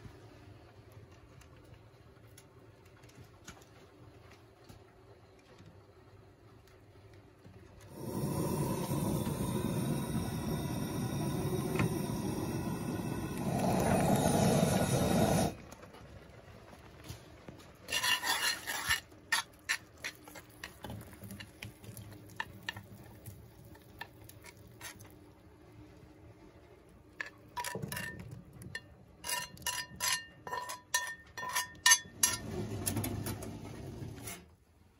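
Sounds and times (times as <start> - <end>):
spoon scraping pan: 17.9 - 20.8, 27.2 - 32.5
pan and spoon clinking bowls: 27.2 - 32.5.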